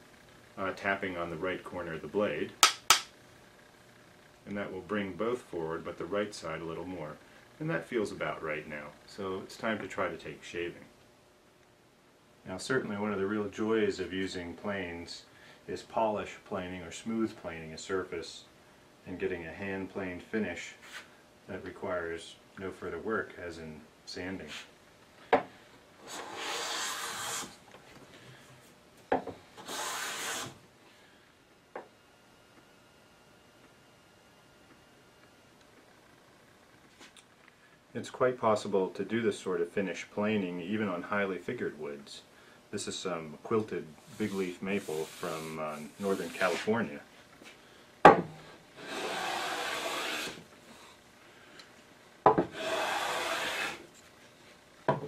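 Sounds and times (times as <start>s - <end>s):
sharp wooden knock: 2.6s - 3.1s
hand plane shaving cut: 26.1s - 27.5s, 29.6s - 30.6s, 48.8s - 50.4s, 52.5s - 53.8s.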